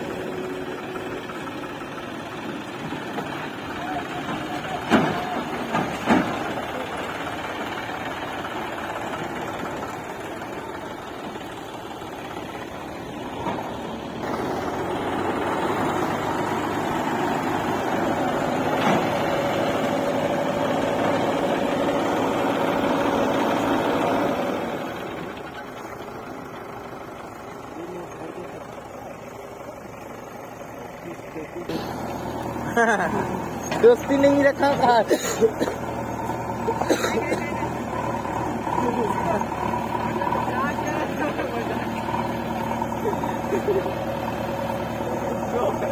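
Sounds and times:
diesel engines running: 0.0 - 45.9.

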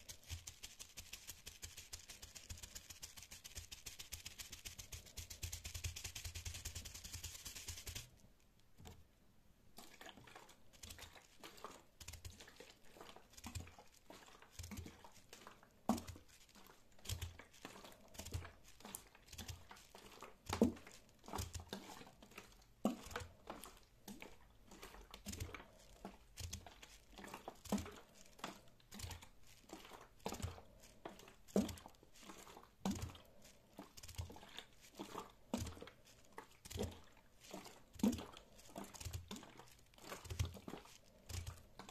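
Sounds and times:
fingers crinkling bubble wrap: 0.0 - 8.2, 10.7 - 41.9.

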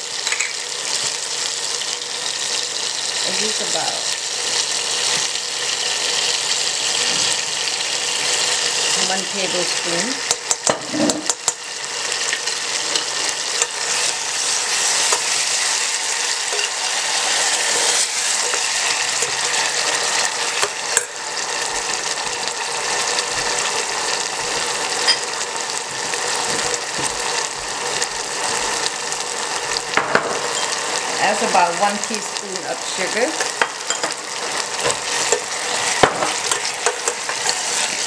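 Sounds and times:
sauce sizzling in a saucepan: 0.0 - 38.0.

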